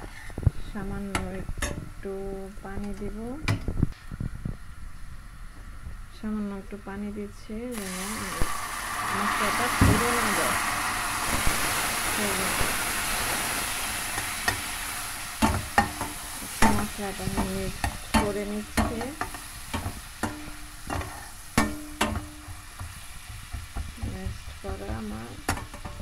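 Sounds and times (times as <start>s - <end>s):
masala sizzling: 7.7s - 26.0s.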